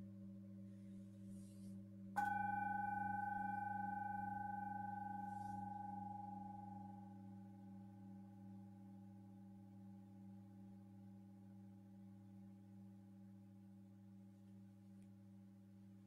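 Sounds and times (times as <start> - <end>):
low singing bowls humming: 0.0 - 12.6
high-pitched singing bowl struck: 2.2 - 8.9.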